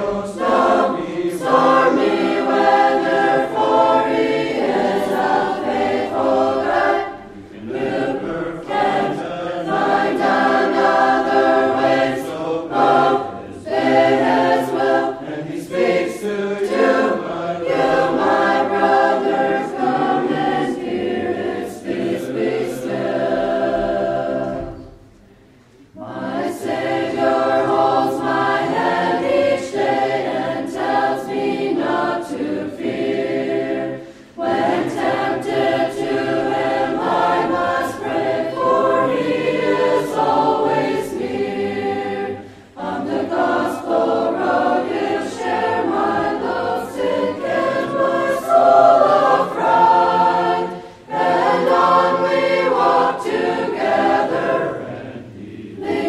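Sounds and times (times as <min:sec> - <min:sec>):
choir singing a hymn: 0:00.0 - 0:56.0.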